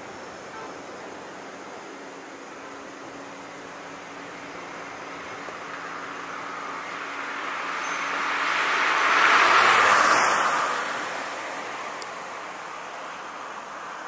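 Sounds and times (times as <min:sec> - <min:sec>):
car driving past: 0:04.3 - 0:13.4.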